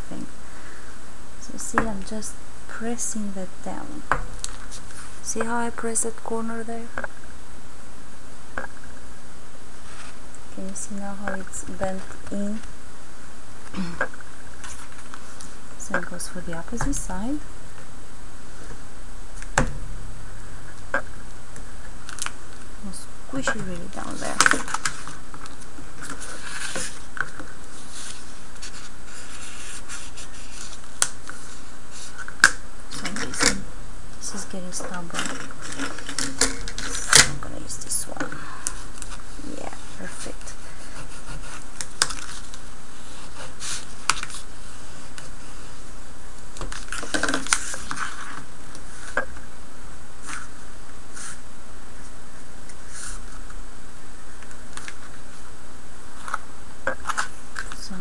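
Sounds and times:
steady background hiss: 0.0 - 58.0
paper rubbing and scraping: 23.4 - 32.3, 38.7 - 45.8, 46.7 - 49.2, 50.2 - 51.4, 52.8 - 53.4
cardstock crinkling and scraping: 34.7 - 44.5.

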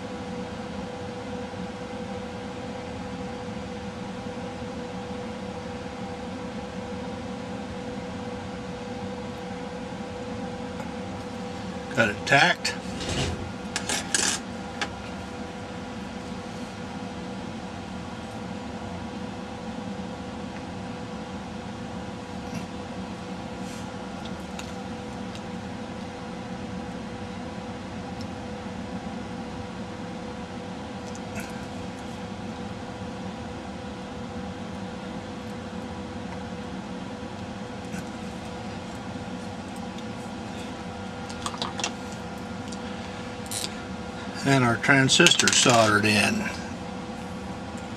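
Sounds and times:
machine hum: 0.0 - 47.9.

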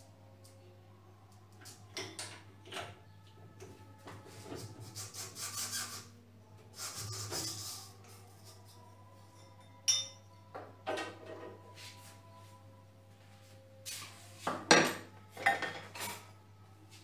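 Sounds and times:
rubber belt rubbing and scraping: 4.4 - 6.1.

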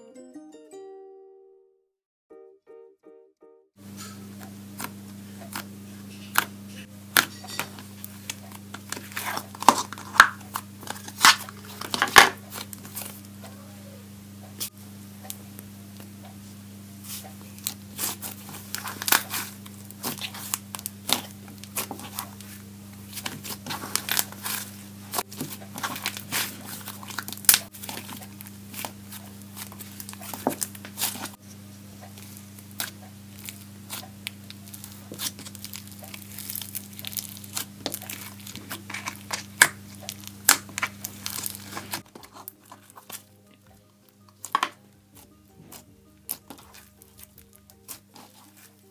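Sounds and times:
slime squishing and popping: 17.1 - 22.5, 23.1 - 31.4, 32.2 - 42.1.

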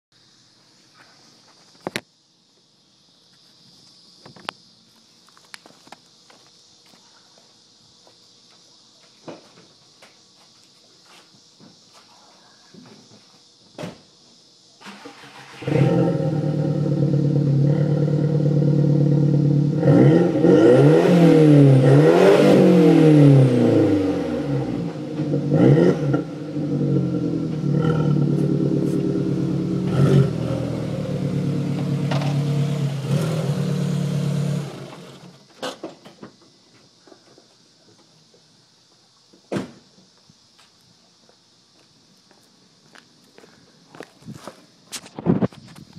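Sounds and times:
car engine starting and revving: 14.8 - 35.4.

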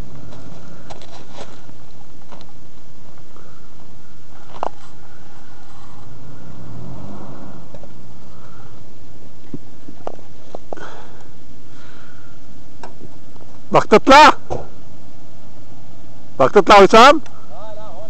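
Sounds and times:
car engine revving: 5.0 - 9.3.

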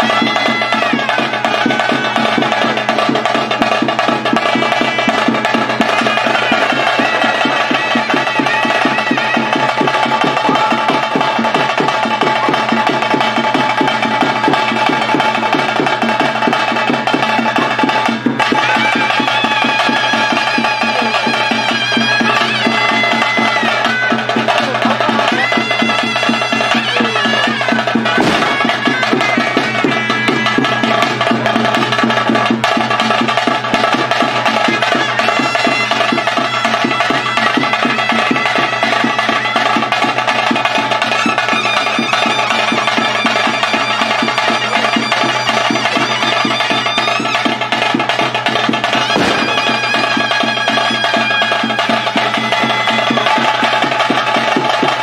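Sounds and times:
fast drumming: 0.0 - 55.0
reed pipe melody: 0.0 - 55.0.

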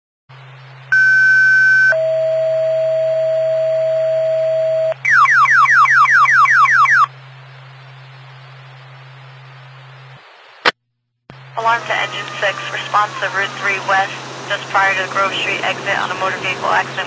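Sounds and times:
low hum: 0.3 - 10.2, 11.3 - 17.0
two-tone radio page: 4.9 - 7.1, 11.6 - 17.0
falling chirps: 5.0 - 7.1
radio hiss: 6.9 - 17.0.

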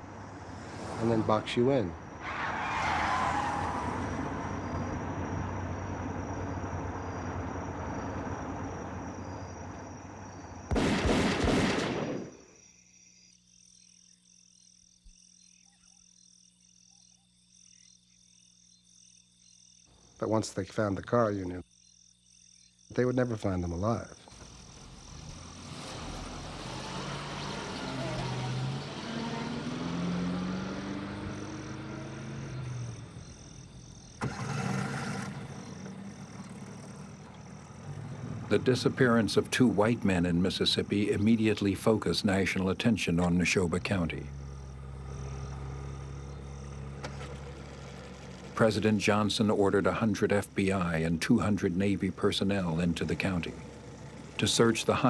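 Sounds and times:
car engine and road noise: 0.0 - 11.1, 23.8 - 55.0
insects and frogs chorus: 3.8 - 11.0, 12.0 - 55.0.

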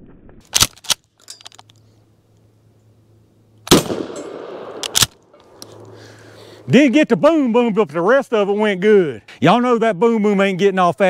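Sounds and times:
shotgun shots: 3.7 - 5.2.

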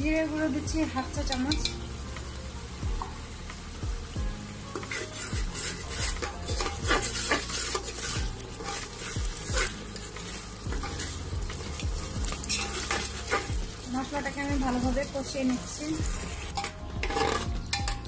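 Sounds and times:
oil sizzling: 0.0 - 18.0
spatula scraping metal pan: 4.8 - 13.6, 15.7 - 18.0.

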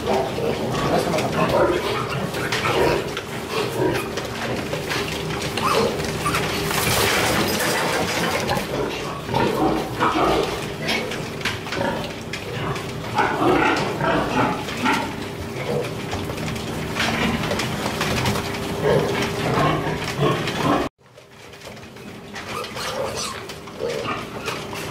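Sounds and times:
piglets grunting and squealing: 0.0 - 16.1, 18.7 - 20.9, 22.4 - 24.9.

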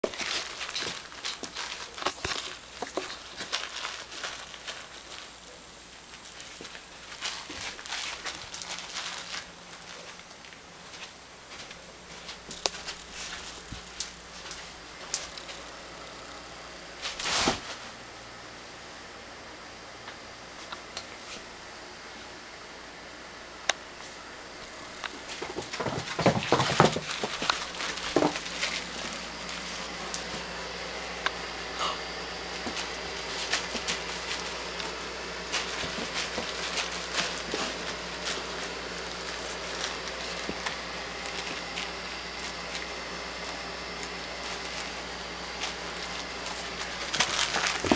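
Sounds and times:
steady hiss: 0.1 - 47.9.

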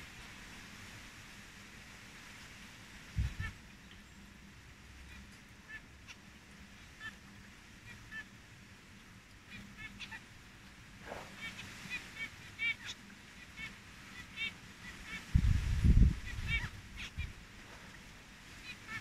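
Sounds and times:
finches beeping calls: 3.2 - 4.2, 5.1 - 8.7, 9.4 - 19.0.

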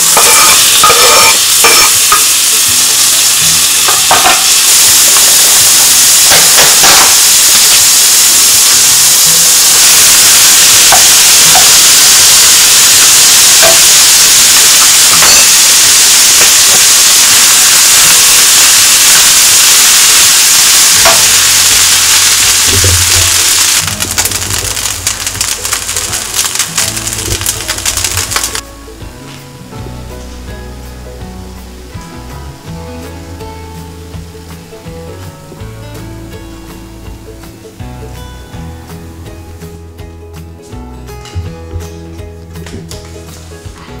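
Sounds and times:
food sizzling in a wok: 0.0 - 39.8.

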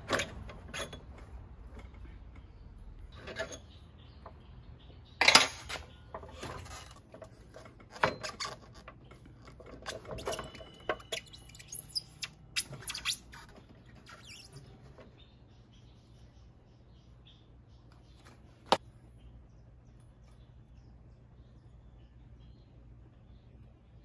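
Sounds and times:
metal parts clinking and knocking: 0.0 - 2.4, 5.2 - 11.2.

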